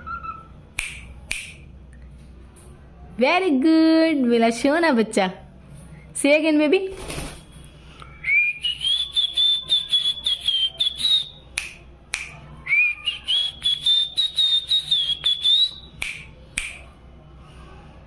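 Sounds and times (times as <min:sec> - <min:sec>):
cockatiel whistling: 0:00.0 - 0:00.5.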